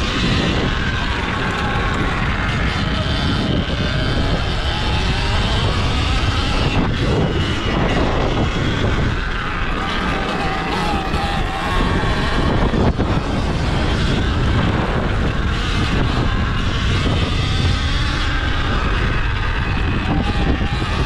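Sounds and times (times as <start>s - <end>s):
dirt bike riding over dirt: 0.0s - 21.0s
electric motor whine: 0.0s - 21.0s.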